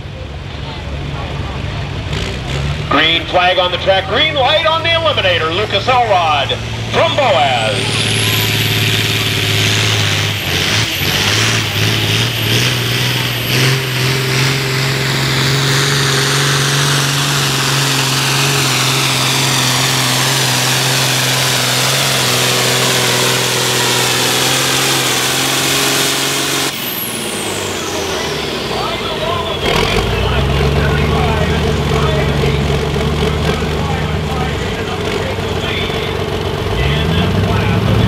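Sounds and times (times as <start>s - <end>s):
tractor engine running hard: 0.0s - 38.0s.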